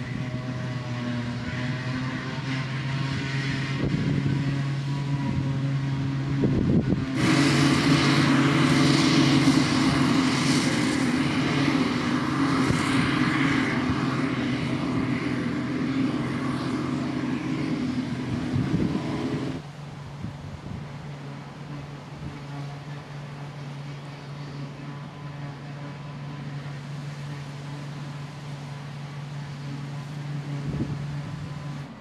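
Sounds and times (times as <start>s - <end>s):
forage harvester chopping grass: 0.0s - 19.6s
tractor hauling trailer: 0.0s - 32.0s.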